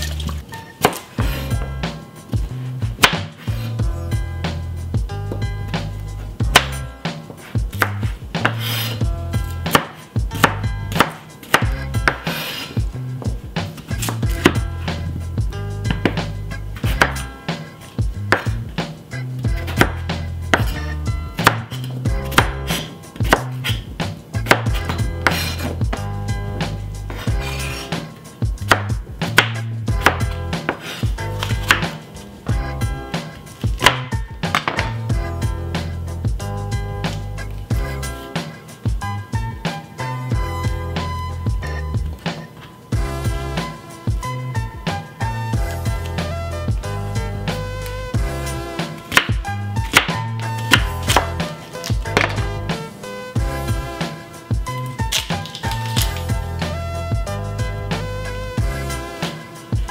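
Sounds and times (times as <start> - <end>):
knife chopping on cutting board: 0.1 - 3.8, 6.4 - 15.1, 15.8 - 18.7, 19.4 - 32.6, 33.2 - 35.1, 48.8 - 52.8, 54.8 - 56.4.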